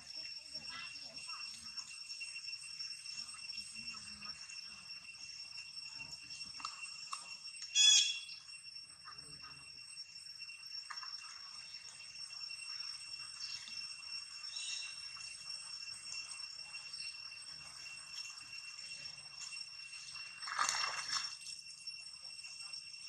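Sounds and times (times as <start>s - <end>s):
high-pitched insect drone: 0.0s - 23.0s
monkeys splashing in water: 20.0s - 21.5s.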